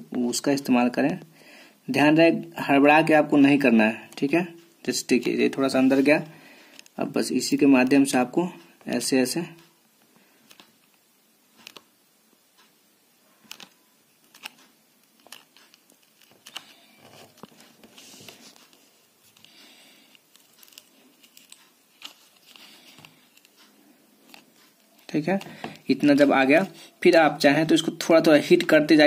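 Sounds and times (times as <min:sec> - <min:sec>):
plastic sleeve crinkling: 0:13.4 - 0:27.4
plastic card scraping phone seam: 0:13.5 - 0:25.8.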